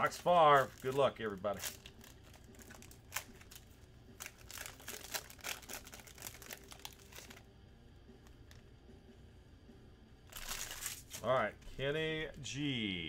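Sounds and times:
foil wrapper tearing and crinkling: 0.0s - 7.4s, 10.3s - 11.3s.

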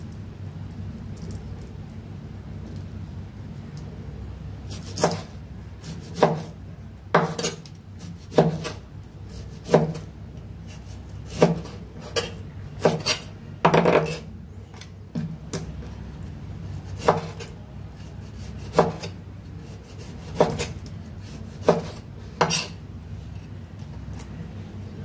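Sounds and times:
knife slicing meat on board: 4.7s - 6.5s, 7.2s - 10.1s, 10.7s - 14.3s, 18.2s - 22.8s.

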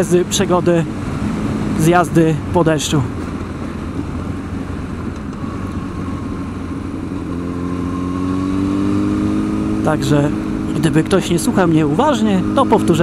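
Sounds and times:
motorcycle engine cruising: 0.0s - 13.0s
wind and road noise: 0.0s - 13.0s.

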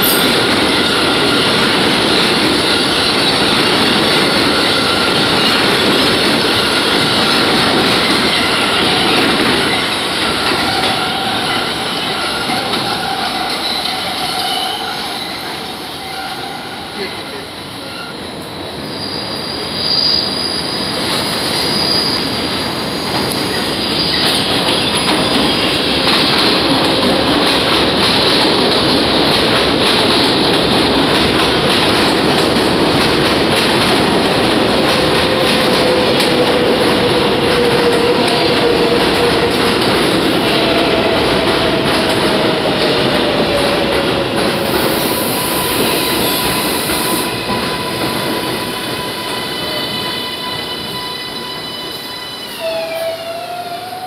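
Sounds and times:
train wheels rumbling on rails: 0.0s - 54.0s
high wheel squeal: 6.3s - 22.4s, 44.6s - 54.0s.

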